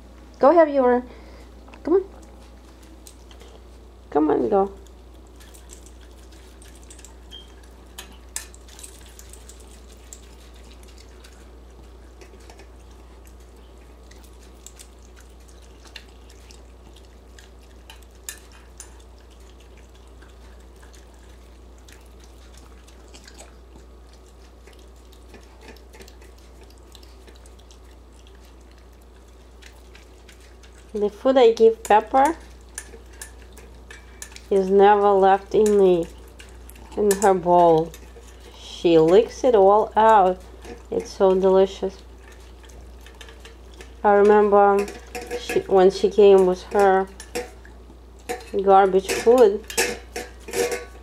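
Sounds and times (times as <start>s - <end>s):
steady low hum: 0.0s - 51.0s
dog licking and chewing: 1.7s - 4.1s, 4.7s - 51.0s
clinks against metal bowl: 44.2s - 47.6s, 48.3s - 51.0s.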